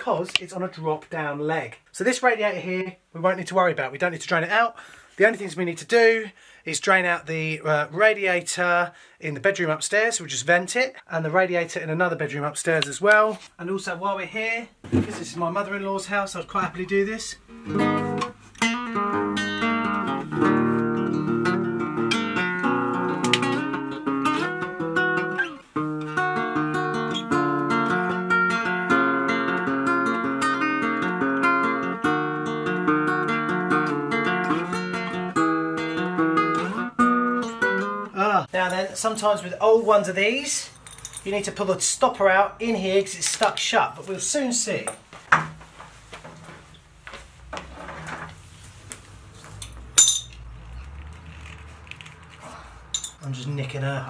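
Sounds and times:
classical guitar playing: 0:17.4 - 0:38.2
sharp metallic clink: 0:50.0 - 0:50.4, 0:52.9 - 0:53.3.

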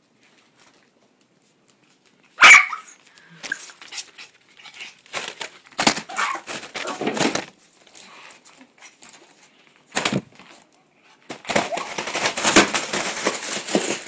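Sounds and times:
small dog barking: 0:02.4 - 0:03.0.

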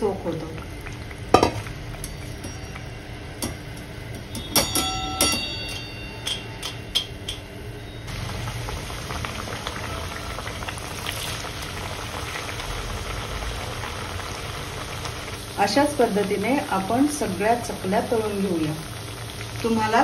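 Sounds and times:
dough frying in hot oil: 0:00.0 - 0:20.0
skimmer clinking on frying pan: 0:01.3 - 0:07.6.

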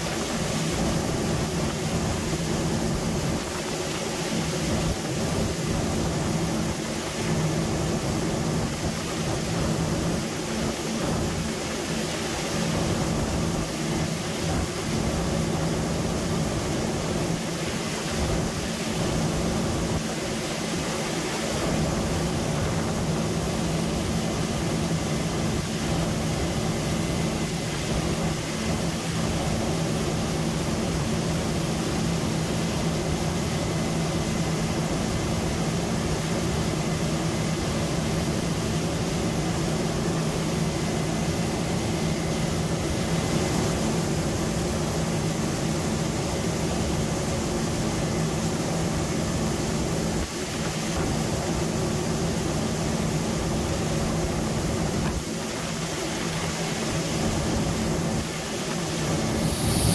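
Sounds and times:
machinery hum with low tones: 0:00.0 - 0:59.9
even rushing noise: 0:58.9 - 0:59.9.

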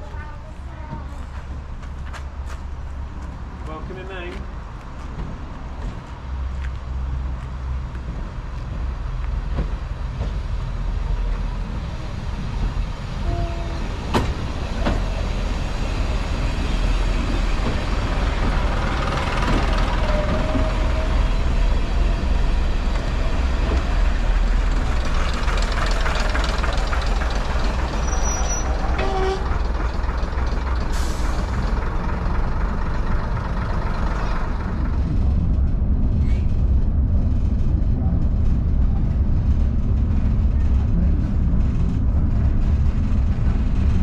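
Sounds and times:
train engines rumbling: 0:00.0 - 0:44.0
thin wheel squeals: 0:28.0 - 0:29.4.

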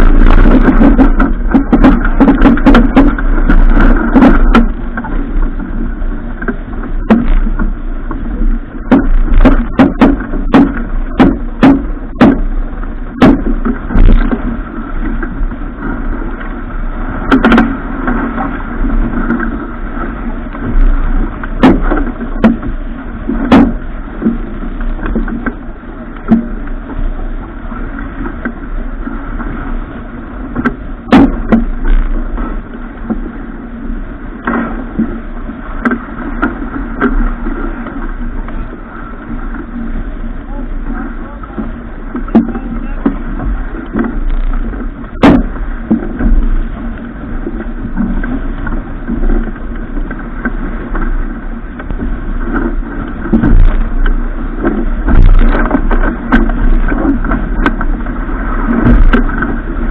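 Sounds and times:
sharp knocks and clatters: 0:00.0 - 0:05.2, 0:06.4 - 0:07.7, 0:08.8 - 0:12.5, 0:13.1 - 0:14.5, 0:17.3 - 0:18.5, 0:20.6 - 0:22.8, 0:23.4 - 0:25.6, 0:30.6 - 0:32.2, 0:43.1 - 0:46.6, 0:51.8 - 0:57.9, 0:58.7 - 0:59.6
constant low hum: 0:00.0 - 0:59.9
steady rushing noise: 0:00.0 - 0:59.9.

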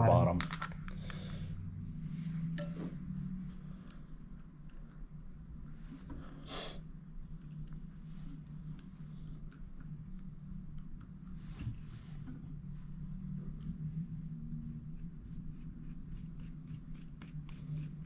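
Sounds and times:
steady low hum: 0:00.0 - 0:18.0
metal screws and tools clinking: 0:00.4 - 0:01.0, 0:02.6 - 0:02.8.

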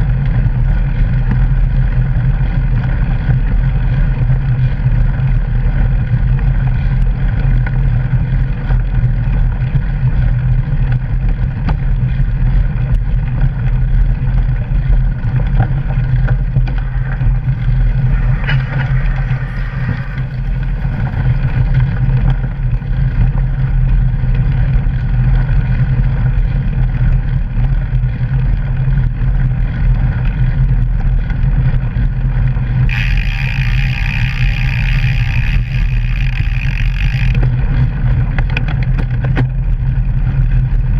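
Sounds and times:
bike rolling over gravel: 0:00.0 - 0:40.9
wind buffeting: 0:15.8 - 0:22.2, 0:32.6 - 0:38.1.

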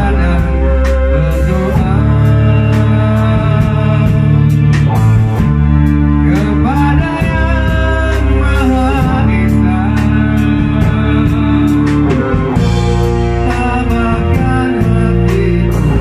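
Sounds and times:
bass guitar: 0:00.0 - 0:16.0
distorted electric guitar: 0:00.0 - 0:16.0
drum kit with cymbals: 0:00.0 - 0:16.0
man singing: 0:00.0 - 0:16.0.

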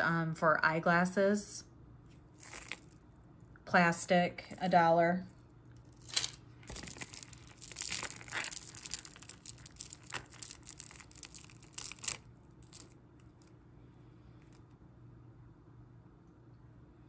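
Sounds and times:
metal chains and beads clinking: 0:02.4 - 0:03.0, 0:04.4 - 0:13.0.

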